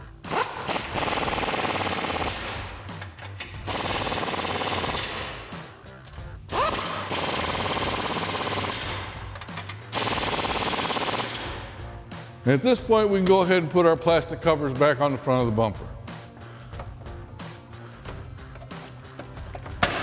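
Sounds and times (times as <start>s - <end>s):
impact wrench rattling: 6.5s - 11.7s, 17.9s - 20.0s.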